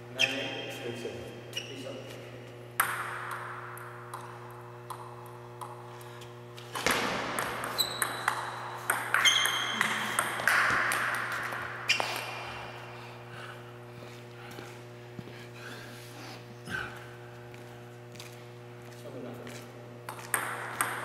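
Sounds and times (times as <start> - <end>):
short high squeaks: 1.5 - 1.9
table tennis ball clicking: 20.1 - 21.0.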